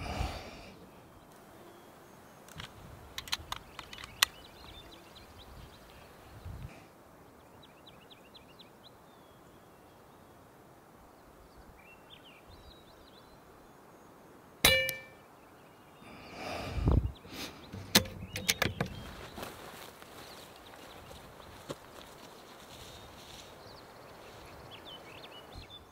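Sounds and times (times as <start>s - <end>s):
rifle handling knocks and clicks: 2.5s - 4.4s, 17.7s - 19.1s.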